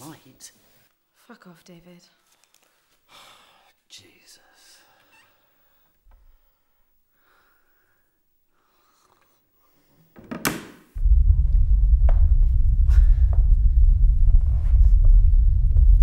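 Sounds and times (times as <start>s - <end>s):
deep rumble: 11.0s - 16.0s.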